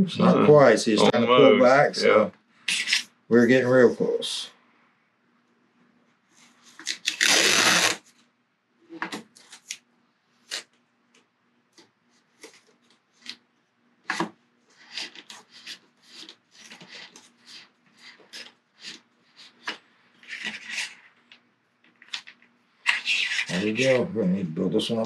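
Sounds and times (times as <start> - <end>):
tape pulled off roll: 6.8 - 8.1.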